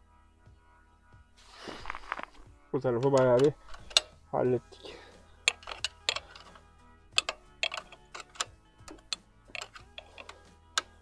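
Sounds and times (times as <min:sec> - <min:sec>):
faint background music: 0:00.0 - 0:11.0
hand tools clicking on metal: 0:03.0 - 0:04.2, 0:05.5 - 0:06.6, 0:07.2 - 0:11.0.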